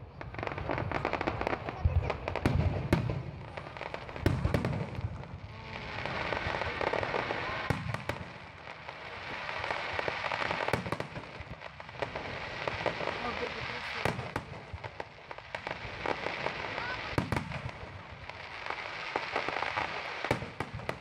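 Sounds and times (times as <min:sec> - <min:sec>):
fireworks crackling and popping: 0:00.0 - 0:21.0
firework shells booming: 0:00.5 - 0:18.4.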